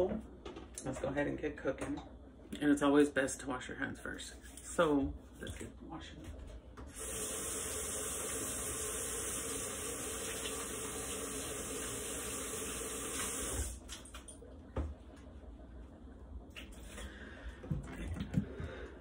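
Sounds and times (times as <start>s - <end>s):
water running from a tap: 6.9s - 13.8s.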